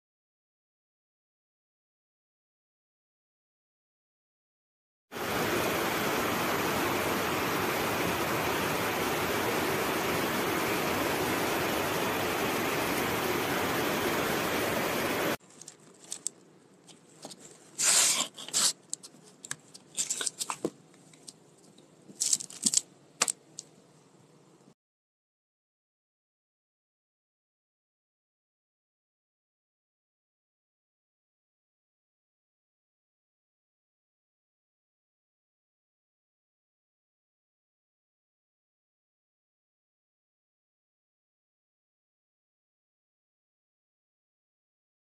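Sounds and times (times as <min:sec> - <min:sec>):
loud even hiss: 0:05.2 - 0:15.4, 0:17.8 - 0:18.8
plastic wrapping crinkling: 0:15.4 - 0:23.7.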